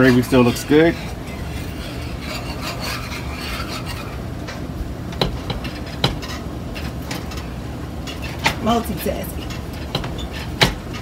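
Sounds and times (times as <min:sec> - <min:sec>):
metal whisk scraping a pan: 0:00.0 - 0:04.2.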